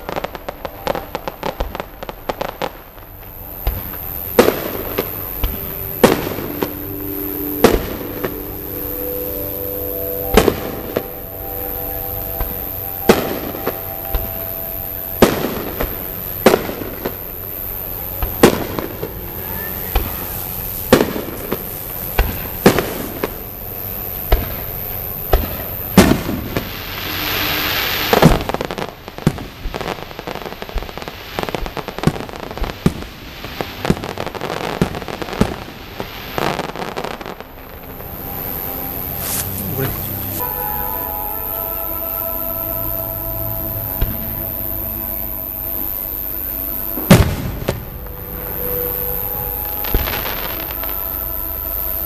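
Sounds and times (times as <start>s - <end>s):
rising firework hiss: 0.0s - 52.0s
small firework pops: 24.3s - 24.7s, 27.8s - 37.4s.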